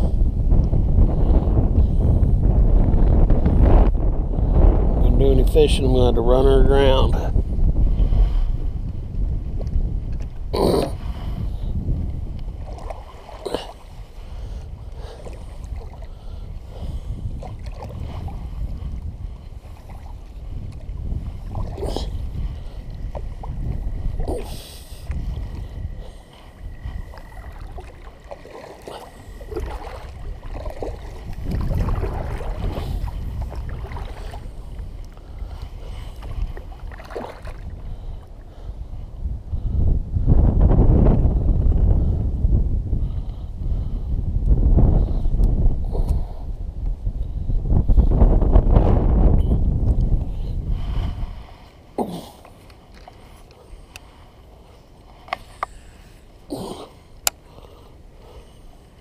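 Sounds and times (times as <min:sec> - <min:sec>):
wind noise on microphone: 0:00.0 - 0:59.0
water lapping against kayak hull: 0:06.9 - 0:39.7, 0:45.0 - 0:59.0
paddle splashes: 0:12.4 - 0:37.9, 0:51.3 - 0:59.0.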